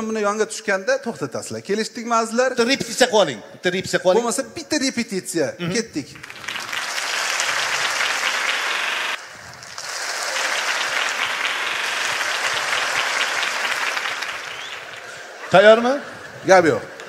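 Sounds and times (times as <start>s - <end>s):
audience applauding: 6.2s - 17.0s.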